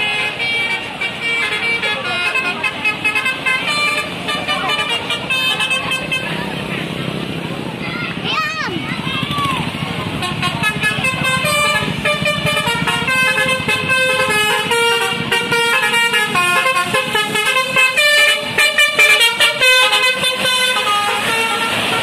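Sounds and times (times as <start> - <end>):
musical air horn playing a tune: 10.2 - 22.0.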